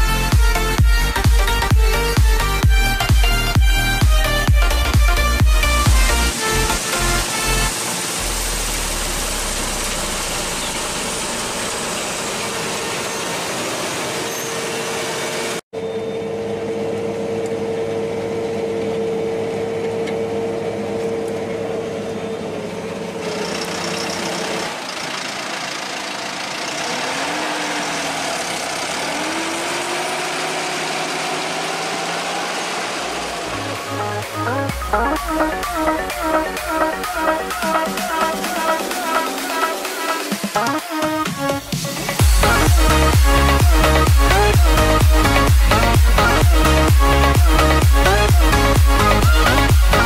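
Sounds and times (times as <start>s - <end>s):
engine drone from inside cab: 0.0s - 50.0s
high whine: 0.0s - 50.0s
combine harvester at work: 0.1s - 39.5s.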